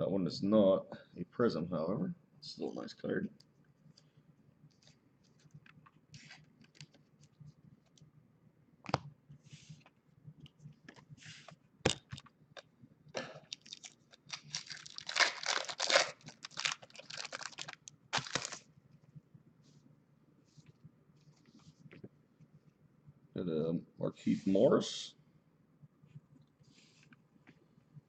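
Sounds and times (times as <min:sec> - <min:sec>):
foil wrapper tearing and crinkling: 0:13.5 - 0:18.7.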